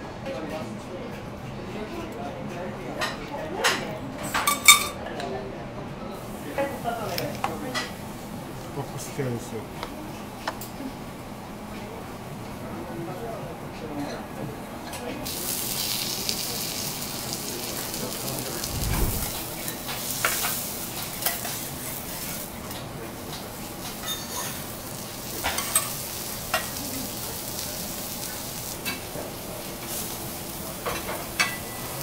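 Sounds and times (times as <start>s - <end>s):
vegetables sizzling on griddle: 15.2s - 22.7s, 23.3s - 32.0s.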